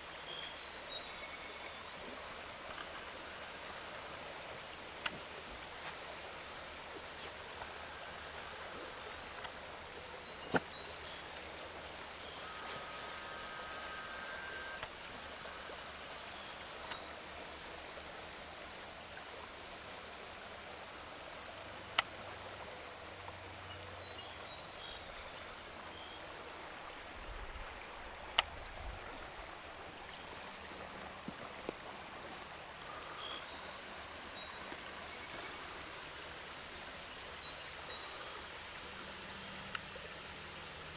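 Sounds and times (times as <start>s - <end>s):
river flowing over riffles: 0.0s - 23.7s, 24.3s - 40.9s
thin high whine: 1.4s - 18.7s.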